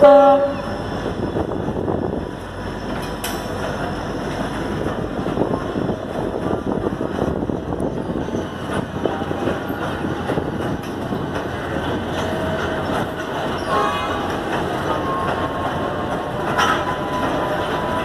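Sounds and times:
train wagons rumbling: 0:00.0 - 0:18.0
wheel clicks over rail joints: 0:14.3 - 0:18.0.

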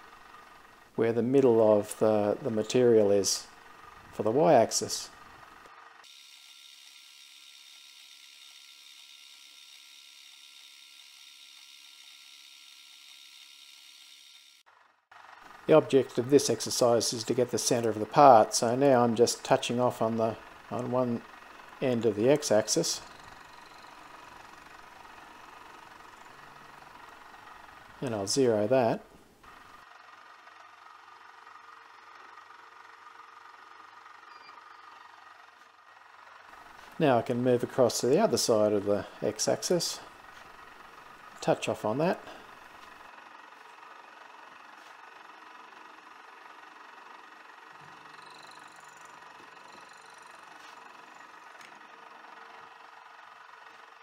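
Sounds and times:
high-pitched machine whine: 0:06.0 - 0:14.6, 0:21.9 - 0:25.2, 0:34.2 - 0:35.0, 0:47.8 - 0:51.8
steady machine tones: 0:47.6 - 0:51.6.

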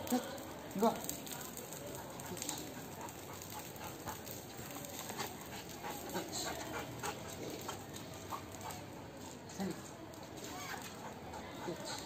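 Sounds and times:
dog panting: 0:01.9 - 0:09.2, 0:10.7 - 0:12.0.

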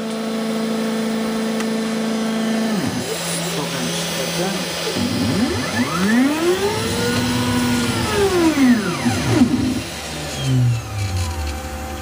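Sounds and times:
machine motors whining: 0:00.0 - 0:12.0
machine powering down hum: 0:02.6 - 0:12.0.

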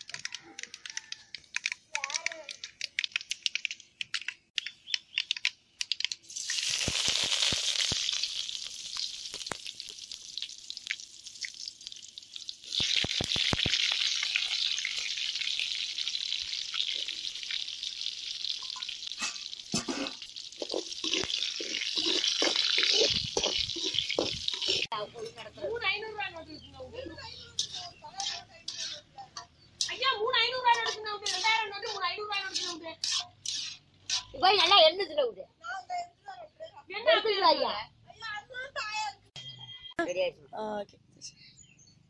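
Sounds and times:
chillies sizzling in hot oil: 0:06.2 - 0:34.7.

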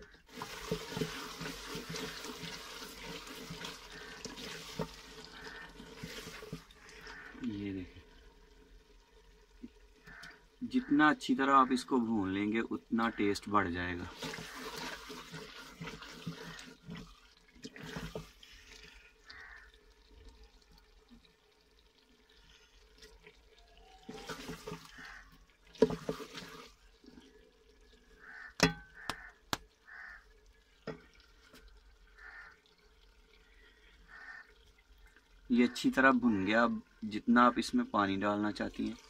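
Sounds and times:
wet sizzling: 0:00.0 - 0:27.3
wooden spoon scraping a pot: 0:14.1 - 0:18.8, 0:25.8 - 0:26.7
spoon knocking against pot: 0:28.6 - 0:29.2.

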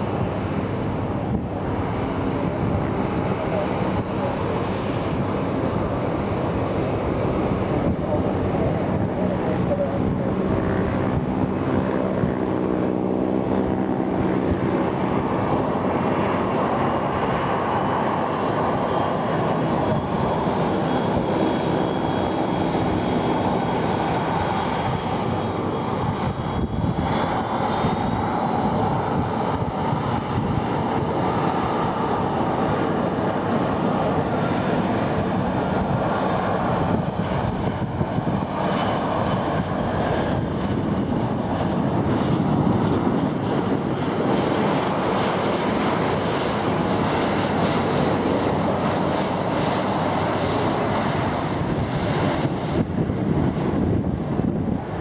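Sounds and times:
high jet whine rising: 0:00.0 - 0:55.0
jet engine rumble: 0:00.0 - 0:55.0.

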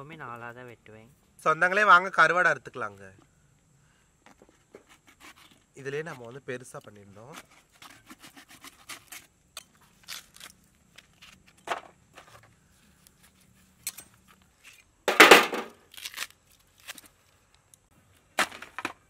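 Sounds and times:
knife cutting on wooden block: 0:04.7 - 0:06.3, 0:07.2 - 0:09.3.

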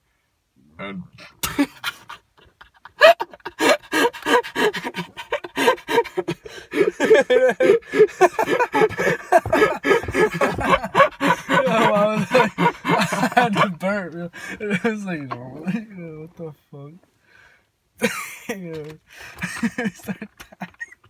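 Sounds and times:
person laughing breathlessly: 0:01.2 - 0:14.7.

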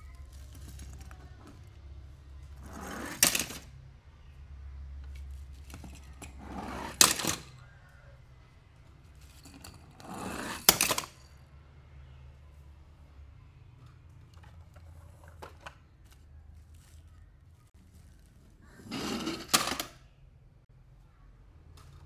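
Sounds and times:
toy car scraping and clacking: 0:02.4 - 0:03.8, 0:05.0 - 0:08.1, 0:09.1 - 0:11.3, 0:18.6 - 0:20.0.

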